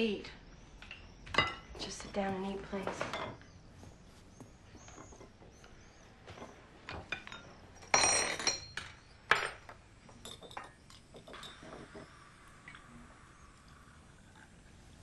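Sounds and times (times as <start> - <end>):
dishes clattering: 1.3 - 1.8, 2.8 - 3.4, 6.4 - 12.1
cutlery clinking on plates: 6.4 - 12.0.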